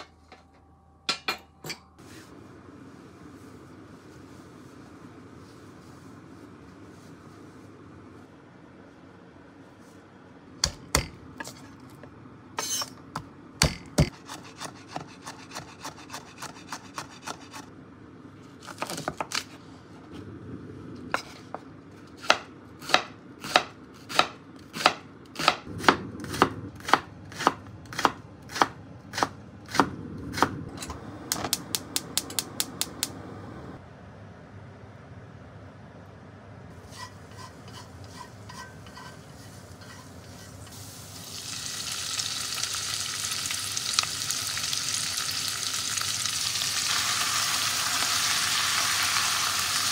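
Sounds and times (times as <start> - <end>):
knife chopping on cutting board: 22.2 - 30.5.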